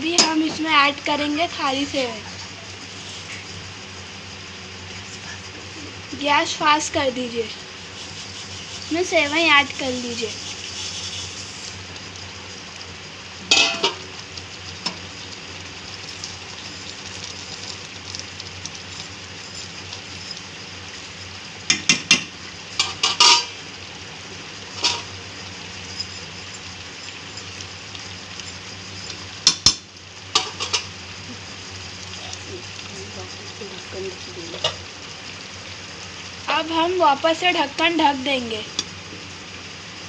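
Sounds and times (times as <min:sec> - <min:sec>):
boiling pan hissing: 0:00.0 - 0:40.0
utensils clinking against pan: 0:00.1 - 0:00.5, 0:13.5 - 0:14.0, 0:21.7 - 0:23.6, 0:29.0 - 0:30.9.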